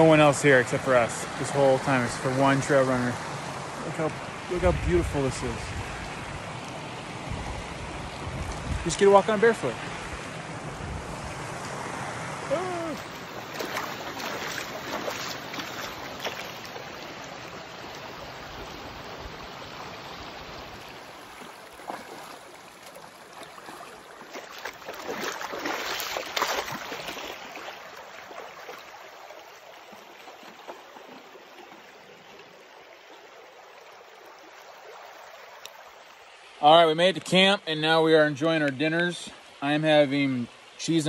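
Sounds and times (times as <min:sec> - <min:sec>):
creek water running: 0:00.0 - 0:41.0
splashing footsteps in water: 0:12.8 - 0:19.1, 0:20.6 - 0:32.5.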